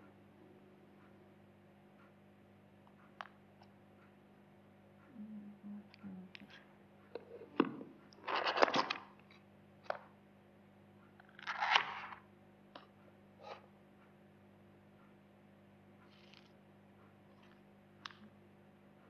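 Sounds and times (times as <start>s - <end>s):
card and paper rustling: 8.2s - 9.0s.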